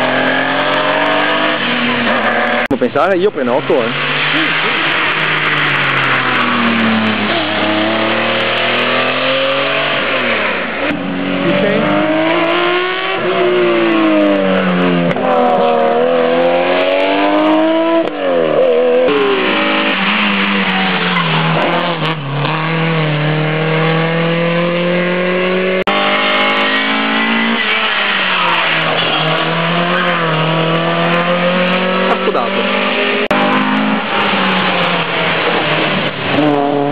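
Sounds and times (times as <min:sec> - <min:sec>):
rally car engines revving: 0:00.0 - 0:36.9.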